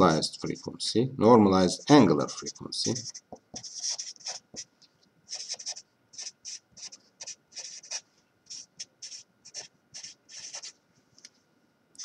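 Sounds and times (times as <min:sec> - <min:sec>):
marker scratching on paper: 0:01.7 - 0:04.7, 0:05.3 - 0:10.8.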